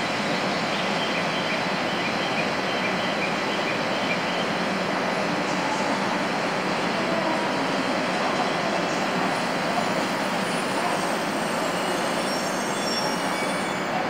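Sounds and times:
train at station platform: 0:00.0 - 0:14.0
faint high squealing: 0:10.4 - 0:14.0.

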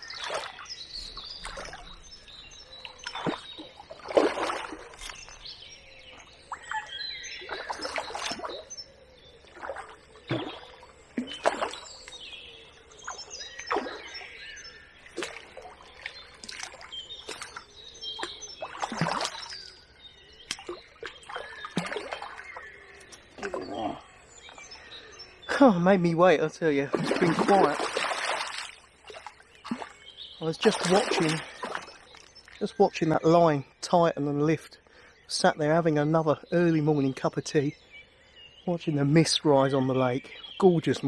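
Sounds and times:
birds singing: 0:00.0 - 0:41.0
fish splashing at water surface: 0:02.9 - 0:05.3, 0:15.1 - 0:19.7, 0:20.5 - 0:22.5, 0:26.9 - 0:30.0.

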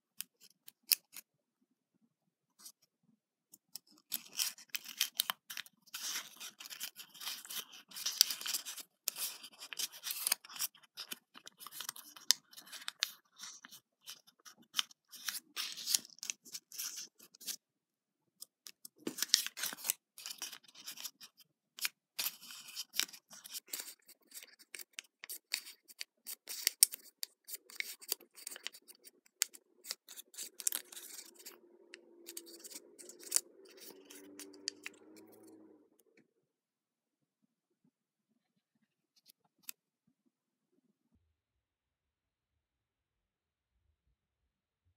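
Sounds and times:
paper crackling and rustling: 0:04.0 - 0:17.6, 0:18.9 - 0:35.4.

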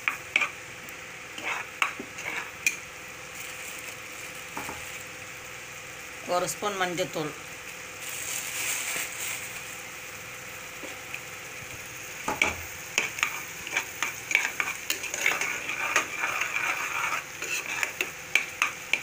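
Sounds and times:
paste sizzling in hot oil: 0:00.0 - 0:06.8, 0:07.4 - 0:19.0
ladle scraping and knocking pot: 0:12.3 - 0:19.0
ladle stirring thick paste: 0:13.1 - 0:19.0.

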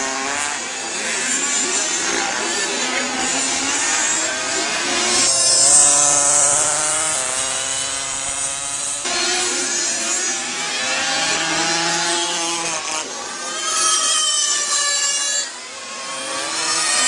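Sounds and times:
small motorcycle engines passing: 0:00.0 - 0:17.0.

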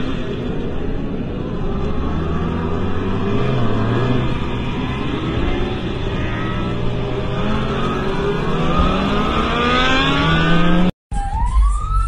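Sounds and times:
motorcycle engine accelerating: 0:00.0 - 0:10.9
police siren: 0:04.4 - 0:12.0.

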